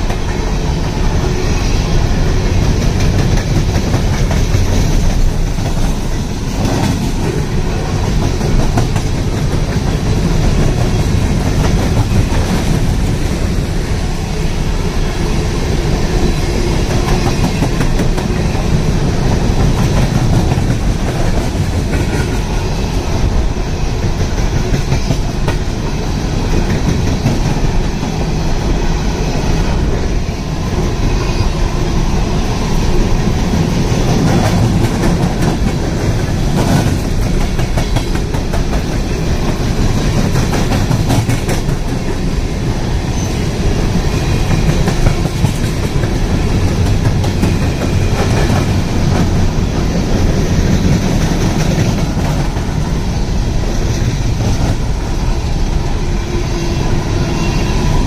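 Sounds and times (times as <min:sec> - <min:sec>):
train wheels clickety-clack: 0:00.0 - 0:58.0.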